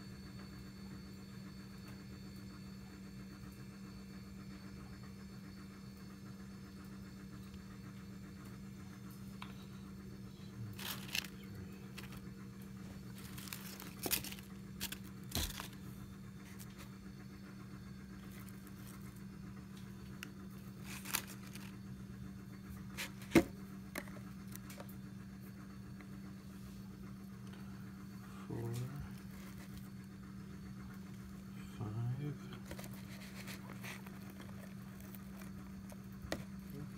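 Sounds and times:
steady low hum: 0.0s - 36.9s
dry leaves crinkling: 10.7s - 12.2s, 13.1s - 15.9s, 20.8s - 21.8s, 32.6s - 36.4s.

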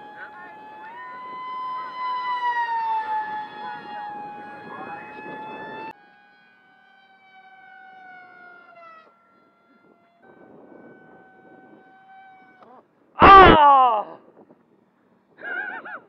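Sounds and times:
wind rumble on microphone: 0.0s - 5.9s, 9.7s - 12.8s, 14.1s - 14.8s
high-pitched electric motor whine: 0.0s - 12.9s.

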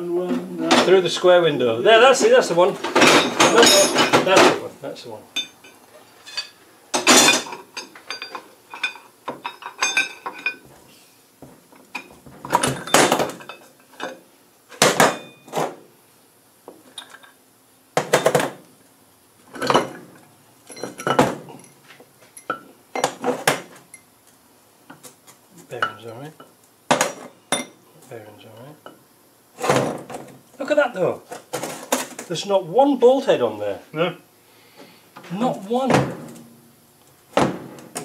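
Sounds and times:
heavy metal parts clanking: 2.2s - 4.7s, 5.4s - 10.6s.

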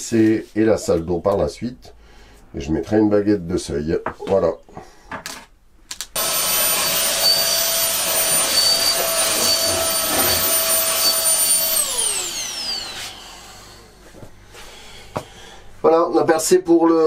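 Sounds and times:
handheld vacuum cleaner whine: 6.2s - 14.0s
vacuum motor winding down: 6.2s - 14.0s.

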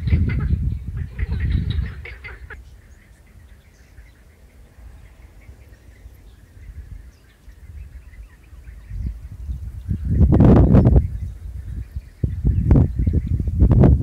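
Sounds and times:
faint frog calls: 0.0s - 8.9s
wind buffeting microphone: 0.0s - 14.0s.

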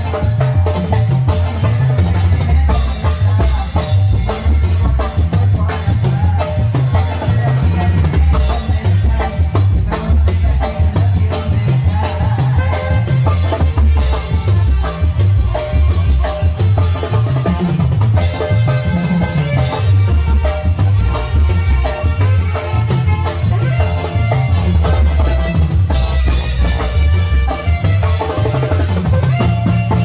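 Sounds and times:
saxophone riffs: 0.0s - 30.0s
steady drums: 0.0s - 30.0s
walking bass line: 0.0s - 30.0s
horn section playing: 11.9s - 30.0s.

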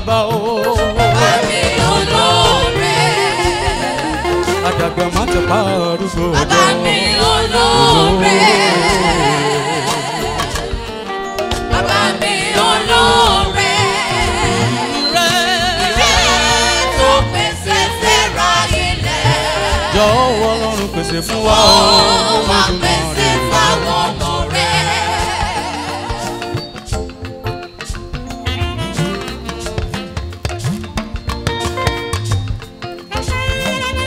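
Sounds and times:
man singing gospel song: 0.0s - 10.6s, 19.6s - 25.6s
instrumental backing: 0.0s - 34.0s.

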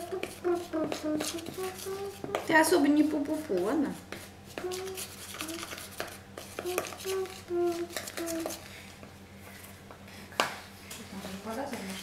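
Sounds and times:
toddler humming: 0.0s - 2.5s, 4.6s - 5.8s, 6.5s - 8.6s
stirring in mixing bowl: 0.0s - 9.7s.

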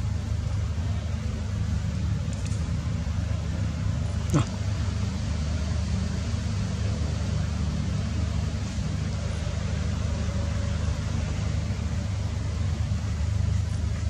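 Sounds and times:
constant hiss: 0.0s - 14.0s
low engine rumble: 0.0s - 14.0s.

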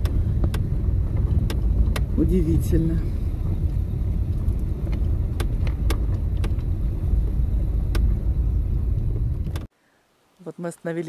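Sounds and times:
tyres and engine rumbling: 0.0s - 9.7s.

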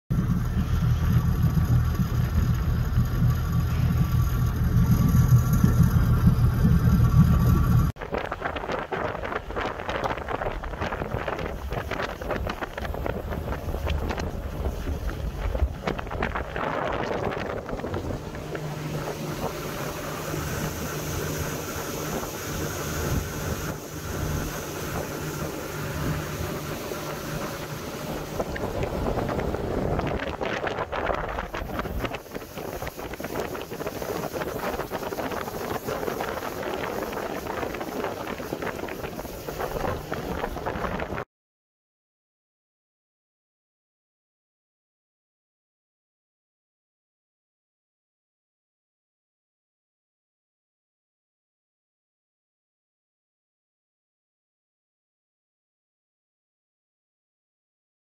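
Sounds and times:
motorboat engine idling: 0.1s - 7.9s, 11.0s - 41.2s
rushing water: 0.1s - 41.2s
wind buffeting microphone: 0.1s - 41.3s.

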